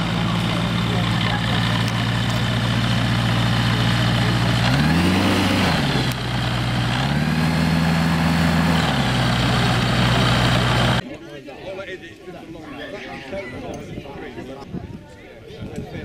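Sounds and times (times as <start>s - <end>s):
gyrocopter engine and propeller: 0.0s - 11.0s.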